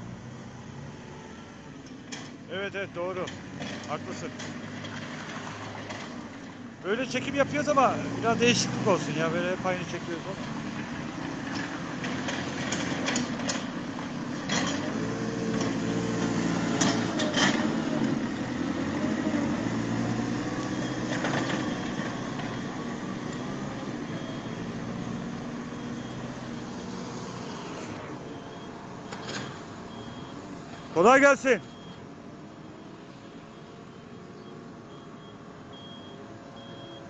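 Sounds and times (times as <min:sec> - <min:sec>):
diesel loader engine under load: 0:00.0 - 0:37.0.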